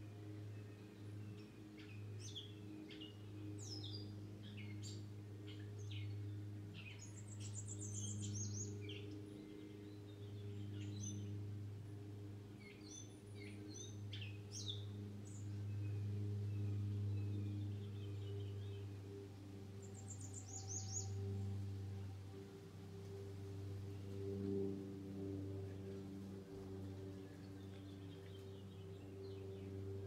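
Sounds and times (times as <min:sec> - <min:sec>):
low machine hum: 0:00.0 - 0:30.0
songbirds chirping: 0:00.0 - 0:30.0.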